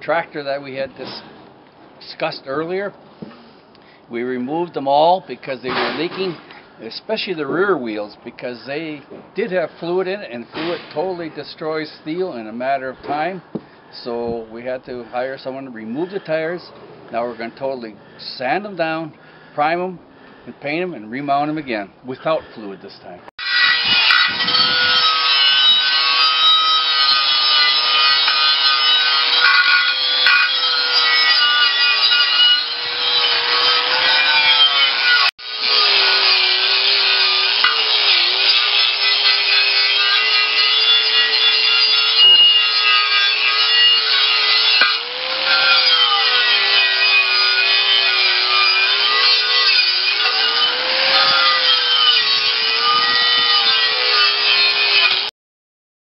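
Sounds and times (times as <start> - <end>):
angle grinder motor whine: 23.4 - 55.3.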